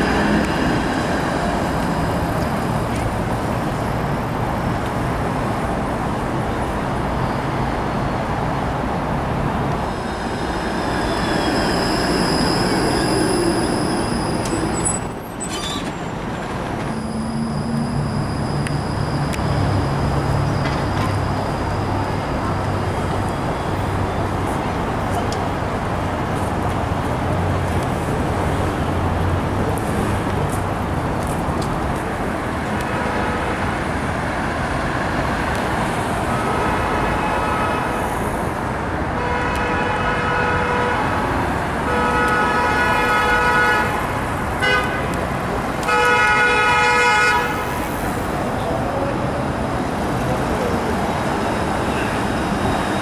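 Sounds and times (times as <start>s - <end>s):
street traffic: 0.0s - 53.0s
vehicle horn blasts: 41.9s - 44.0s, 45.9s - 47.6s.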